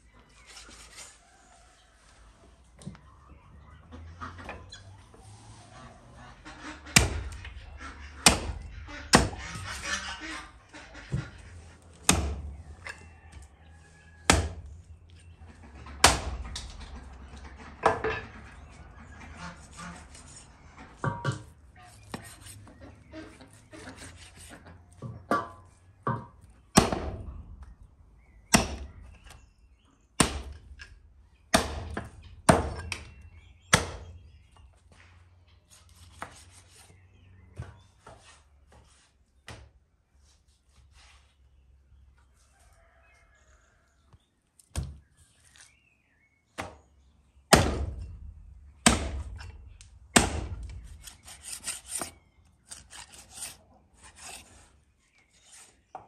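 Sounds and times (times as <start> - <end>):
cleaver chopping on wooden block: 8.2 - 9.4, 12.0 - 12.5, 14.3 - 14.7, 26.8 - 27.2, 28.5 - 28.9, 30.2 - 30.6, 31.5 - 33.1, 33.7 - 34.0, 47.5 - 48.0, 48.8 - 49.5, 50.2 - 52.1
soft knife cutting: 51.0 - 54.6.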